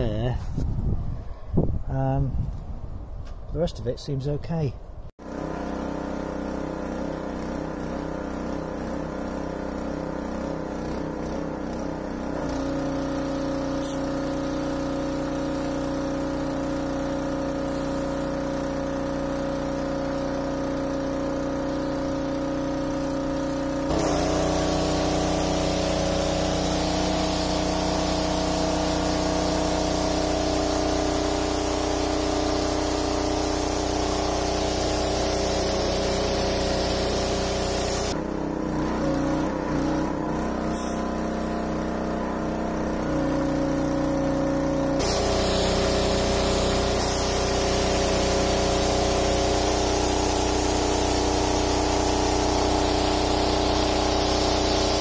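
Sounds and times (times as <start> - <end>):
pressure washer motor humming: 5.2 - 55.0
high-pressure water jet hissing: 9.8 - 23.2, 23.8 - 38.2, 39.0 - 42.0, 45.0 - 55.0.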